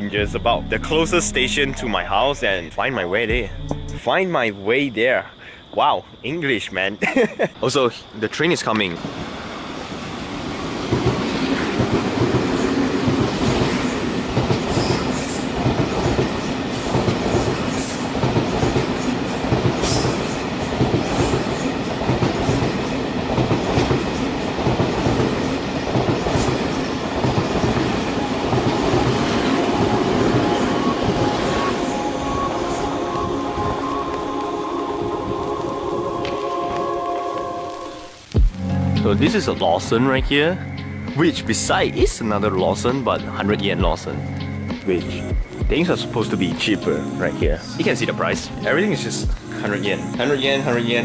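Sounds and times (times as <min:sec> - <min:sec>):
train rumbling: 0:00.0 - 0:04.2, 0:08.6 - 0:39.4.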